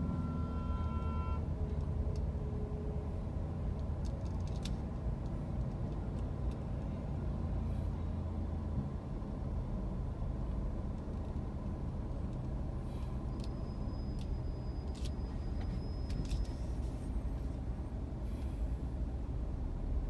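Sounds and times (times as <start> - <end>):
faint thin high tone: 0.0 - 1.4
idling vehicles rumbling: 0.0 - 20.0.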